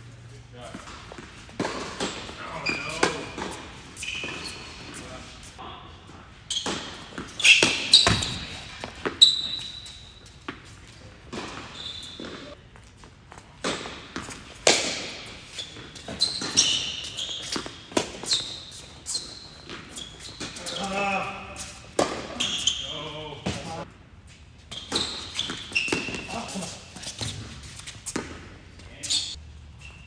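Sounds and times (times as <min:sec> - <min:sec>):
shoe squeaks: 0:00.6 - 0:05.6, 0:06.4 - 0:12.6, 0:15.1 - 0:30.0
ball bouncing on court: 0:00.8 - 0:04.6, 0:06.5 - 0:09.7.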